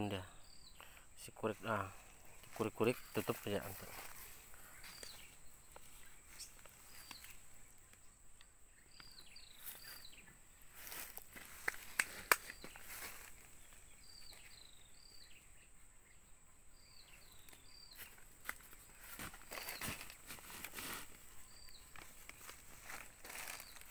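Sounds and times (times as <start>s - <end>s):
sharp clicks: 11.6s - 12.7s
hand rustling plastic bags: 22.0s - 23.9s.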